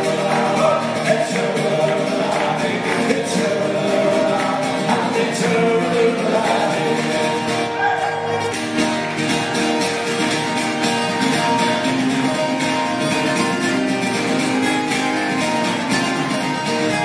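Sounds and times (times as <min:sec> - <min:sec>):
man singing: 0:00.0 - 0:07.9
mandolin: 0:00.0 - 0:17.0
strummed acoustic guitar: 0:00.0 - 0:17.0.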